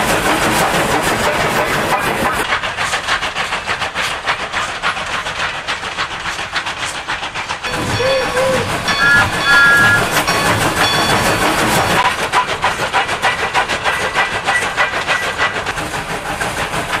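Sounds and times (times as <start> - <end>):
steam locomotive chuffing: 0.0 - 17.0
two-tone train whistle: 7.7 - 11.5.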